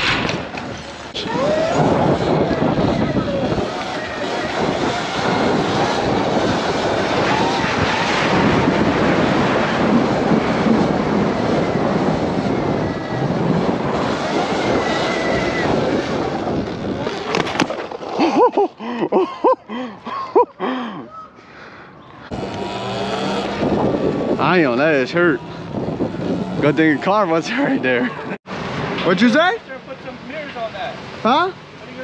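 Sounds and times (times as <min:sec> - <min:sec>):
wind and riding noise: 0:00.0 - 0:32.0.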